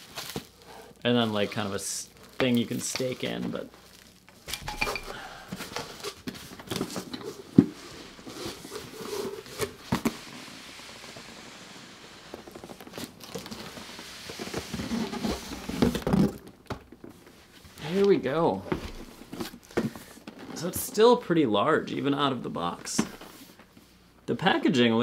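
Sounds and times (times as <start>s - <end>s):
cardboard and packing rustling: 0.0s - 21.2s
box sliding out of carton: 13.6s - 16.0s.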